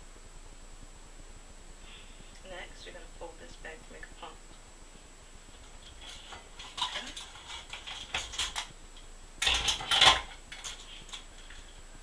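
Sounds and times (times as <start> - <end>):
clicking and clattering: 5.6 - 11.6.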